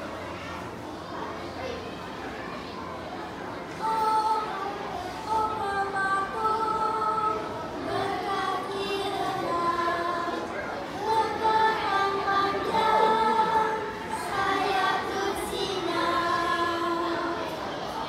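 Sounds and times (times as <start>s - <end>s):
children singing together: 3.6s - 18.0s.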